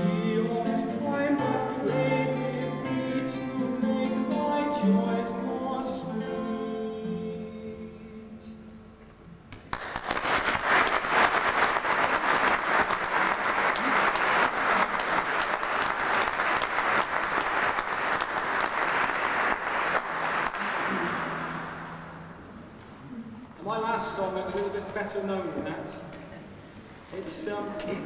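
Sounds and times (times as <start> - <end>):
audience applauding: 9.5 - 22.2.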